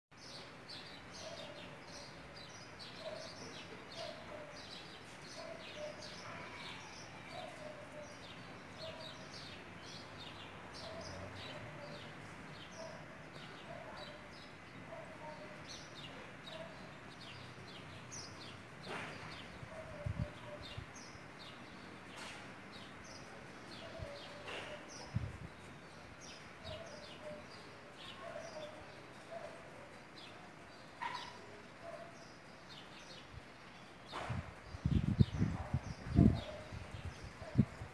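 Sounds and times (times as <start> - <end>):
small birds chirping: 0.1 - 37.9.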